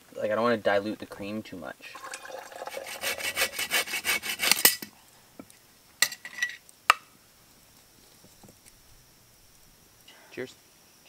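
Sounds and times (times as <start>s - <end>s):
spoon clinking on cup: 2.0s - 2.9s
spoon stirring in a cup: 2.0s - 3.5s.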